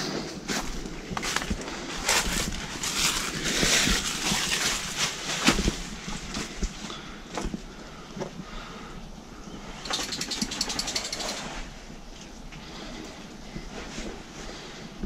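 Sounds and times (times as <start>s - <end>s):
footsteps crunching dry leaves: 0.3s - 6.8s.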